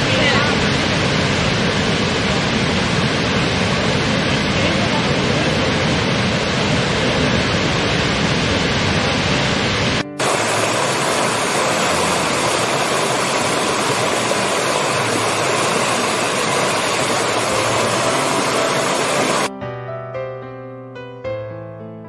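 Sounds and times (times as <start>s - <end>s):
large waterfall rushing: 0.0s - 19.5s
stream splashing over rocks: 10.2s - 19.5s.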